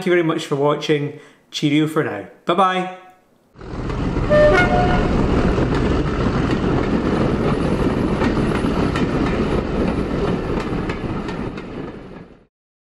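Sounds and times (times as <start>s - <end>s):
wheels clicking over rail joints: 3.6s - 12.4s
train rumbling on rails: 3.6s - 12.5s.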